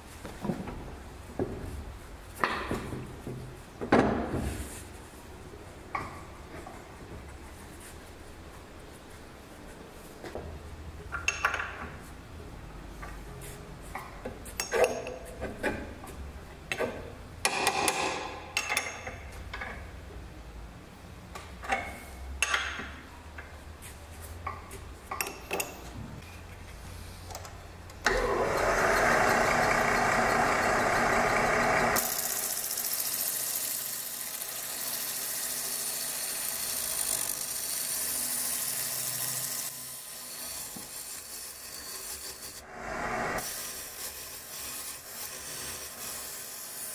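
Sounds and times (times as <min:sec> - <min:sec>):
wood lathe humming: 0:28.1 - 0:40.9
gouge scraping spinning wood: 0:28.1 - 0:44.2.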